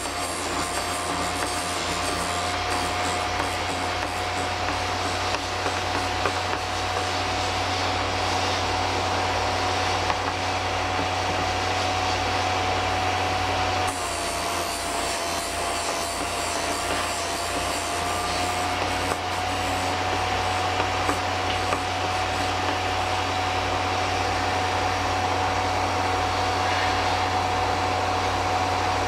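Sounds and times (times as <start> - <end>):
drill bit grinding on wheel: 0.0 - 11.3, 13.9 - 23.8
sharpener motor whine: 0.0 - 29.0.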